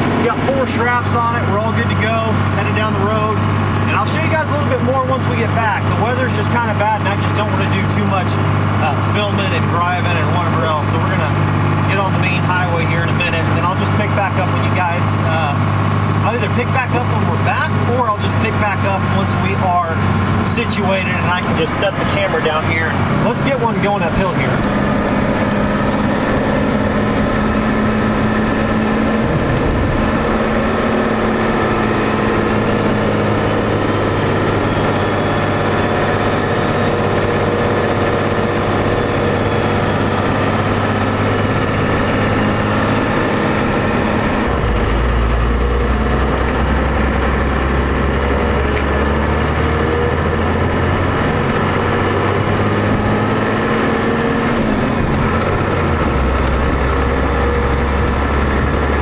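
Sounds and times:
diesel truck engine running: 0.0s - 59.0s
deep low drone: 17.0s - 59.0s.

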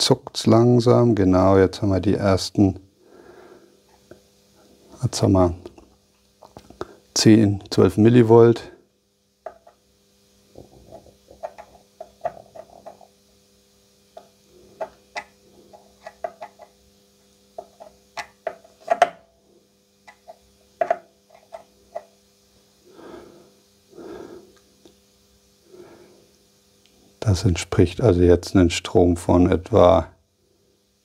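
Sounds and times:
faint steady hum: 0.0s - 31.0s
person breathing: 3.0s - 3.9s, 22.8s - 24.6s, 25.6s - 26.4s.

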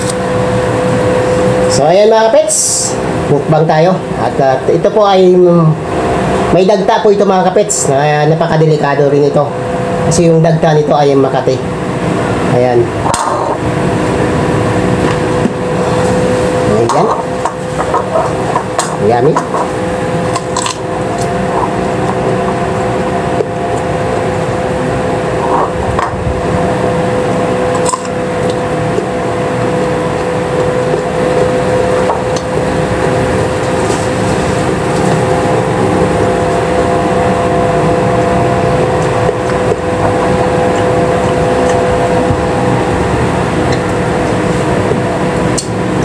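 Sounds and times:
droning hum: 0.0s - 46.0s
chewing crunchy fruit: 27.7s - 45.8s.

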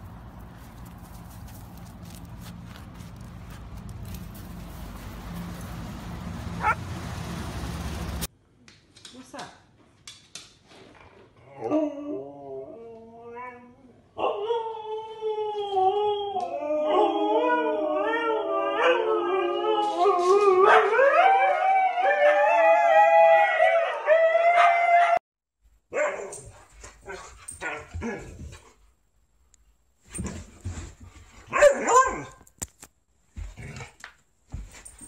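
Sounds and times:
dogs howling: 6.5s - 6.8s, 14.2s - 25.2s
dog yips and barks: 6.6s - 6.8s, 25.9s - 28.2s, 31.5s - 32.4s.

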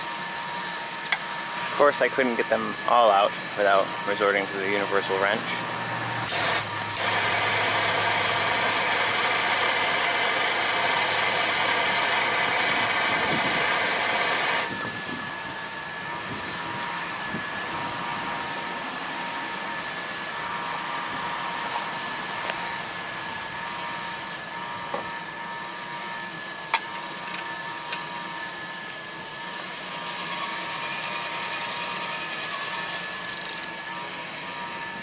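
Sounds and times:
gas torch hissing: 6.2s - 14.7s.

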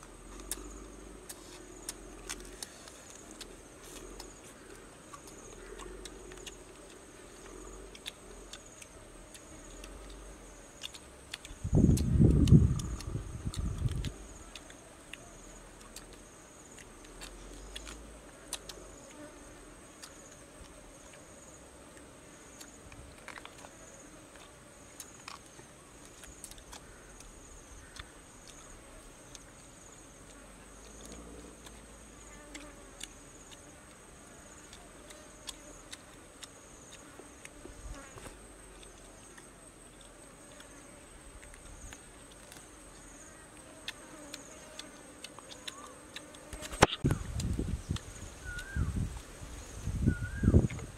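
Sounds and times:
insects trilling: 0.0s - 50.9s
pulsing insect call: 22.3s - 50.9s.

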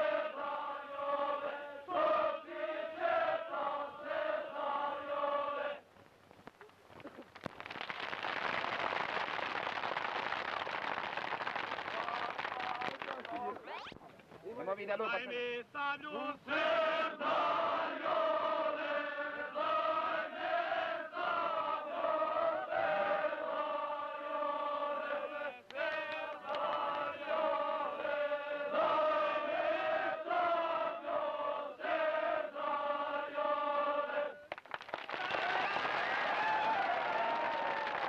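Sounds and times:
voices chanting in unison: 0.0s - 5.9s, 16.0s - 34.5s
crowd cheering and clapping: 7.1s - 13.7s, 25.6s - 27.6s, 34.4s - 38.0s.

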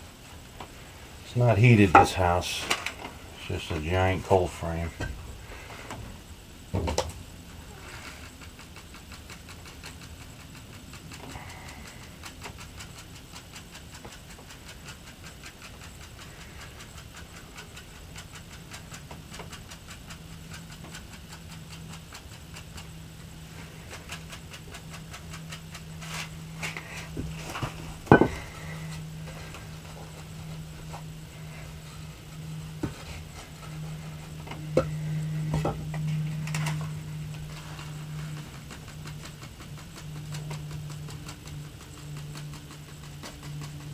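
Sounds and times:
handwork in soil: 0.0s - 43.9s
steady low hum: 0.0s - 43.9s
faint regular ticking: 0.5s - 43.9s
wooden board knocking down: 28.1s - 28.4s.

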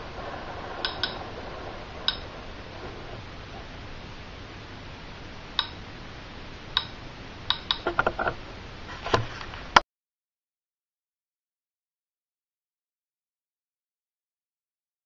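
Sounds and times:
faint hiss: 0.0s - 9.8s
radiation meter clicking: 0.6s - 3.2s, 5.6s - 5.9s, 6.7s - 8.4s.

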